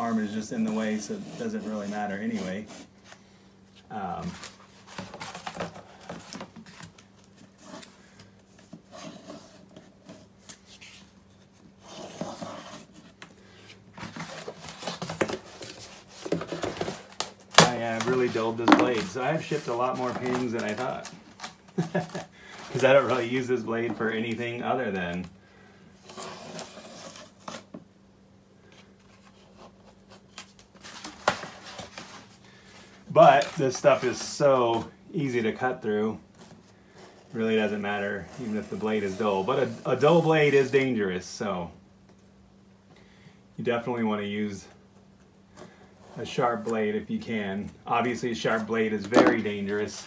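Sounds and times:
board clicks and rustles: 13.9s - 24.4s, 48.9s - 50.0s.

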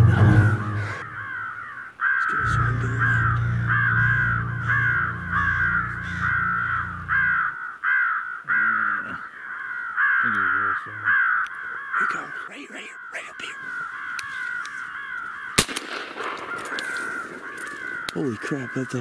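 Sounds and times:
low steady drone: 0.0s - 1.5s, 2.3s - 7.6s
crows cawing: 0.0s - 19.0s.

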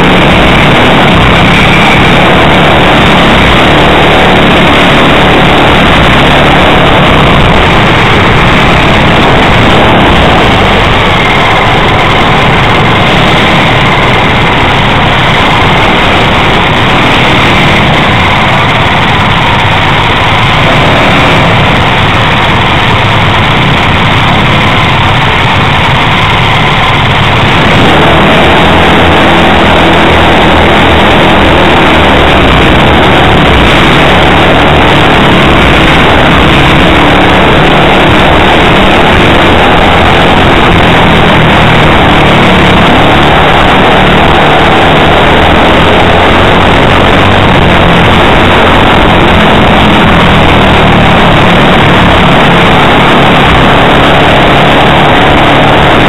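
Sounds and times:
kart engines running: 0.0s - 56.0s.

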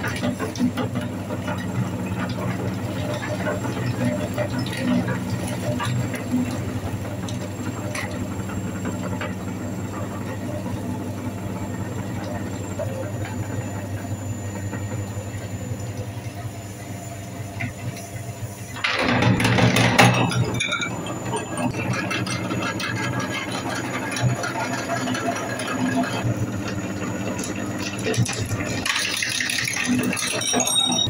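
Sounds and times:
electric meat grinder running: 0.0s - 31.0s.

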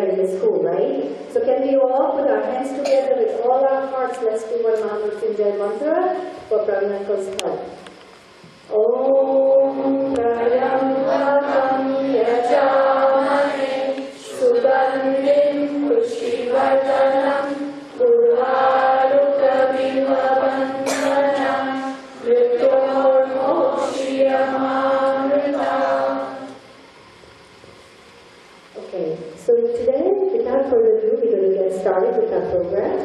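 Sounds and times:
voices chanting in unison: 8.8s - 26.6s.

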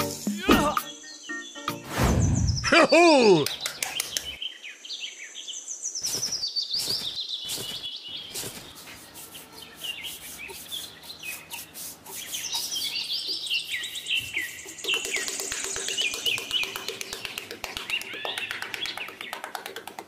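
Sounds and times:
small birds chirping: 0.0s - 19.8s.

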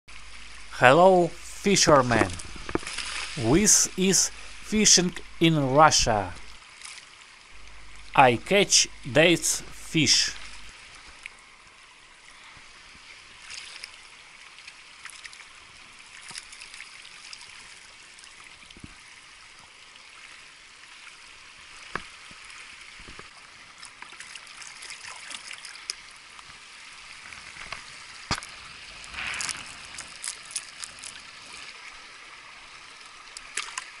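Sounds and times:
water trickling and splashing: 0.1s - 0.7s, 2.1s - 3.4s, 6.4s - 8.1s, 10.4s - 34.0s
sharp splashes and clicks: 2.1s - 3.4s, 27.6s - 31.8s, 33.3s - 34.0s.

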